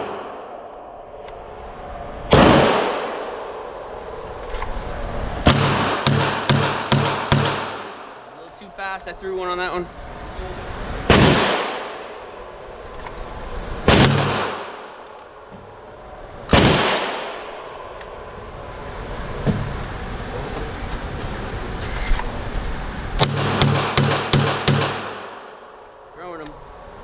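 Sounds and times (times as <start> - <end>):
loud gunshots with echo: 2.3 - 3.4, 5.4 - 8.2, 11.0 - 12.2, 13.8 - 15.0, 16.5 - 17.5, 23.2 - 25.5.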